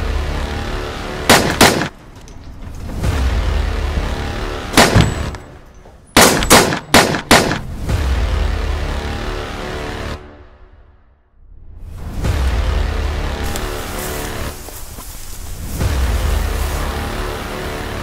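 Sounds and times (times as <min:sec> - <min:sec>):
sustained music: 0:00.0 - 0:18.0
pistol gunshots: 0:01.3 - 0:02.0, 0:04.7 - 0:05.5, 0:06.2 - 0:07.8.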